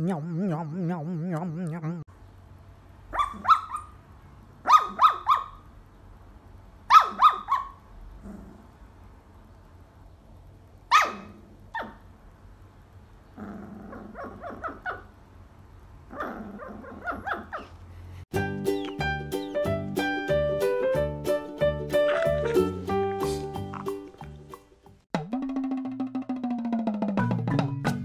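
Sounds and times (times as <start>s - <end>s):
puppy yipping and barking: 3.1s - 4.0s, 4.6s - 5.6s, 6.9s - 7.8s, 10.9s - 12.0s, 13.9s - 15.1s, 16.1s - 17.8s, 22.0s - 22.8s.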